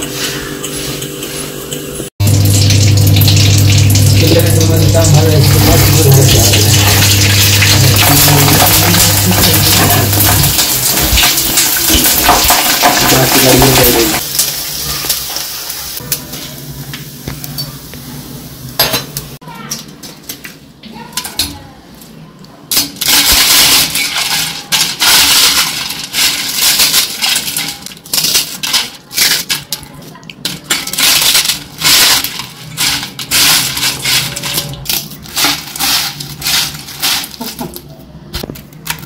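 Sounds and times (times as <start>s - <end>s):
pieces clinking on steel bowl: 2.7s - 14.2s, 22.7s - 37.9s
fritters crunching by hand: 22.7s - 39.0s.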